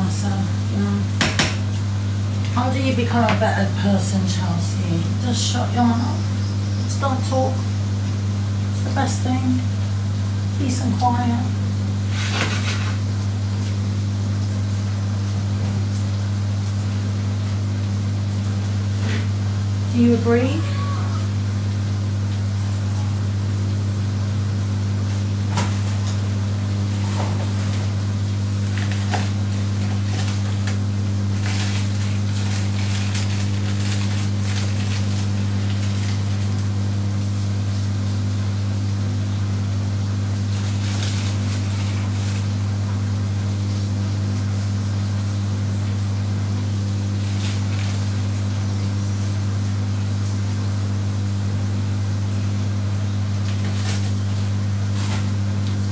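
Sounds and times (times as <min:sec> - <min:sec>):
steady low hum: 0:00.0 - 0:55.9
packet rustling and clicking: 0:31.4 - 0:36.6.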